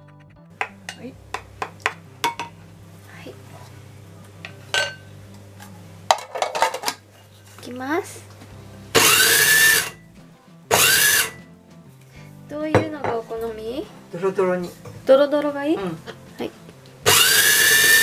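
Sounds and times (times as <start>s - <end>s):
bowl and lid clicks and knocks: 0.6s - 2.6s, 6.1s - 7.0s
food processor motor whirring: 9.0s - 10.0s, 10.7s - 11.4s, 17.0s - 18.0s.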